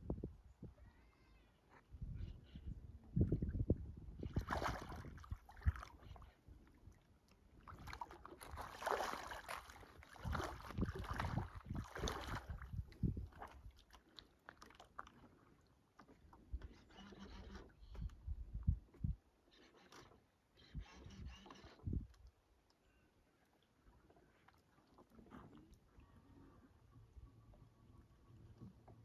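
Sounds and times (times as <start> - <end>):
water sloshing and splashing: 3.2 - 18.1, 23.4 - 26.0.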